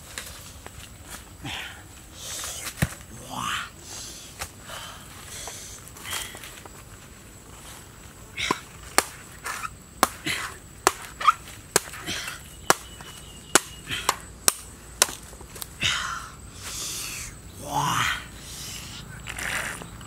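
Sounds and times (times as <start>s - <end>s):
knife chopping coconut husk: 8.4s - 15.2s.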